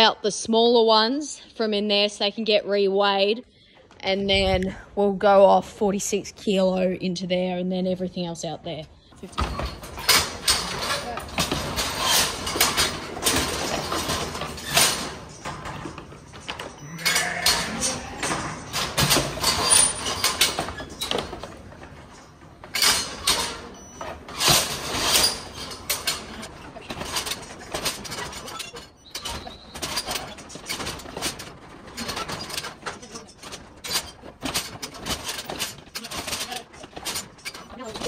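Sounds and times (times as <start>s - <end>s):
hooves knocking on crate floor: 9.2s - 38.0s
steel gates clanging and sliding: 9.2s - 38.0s.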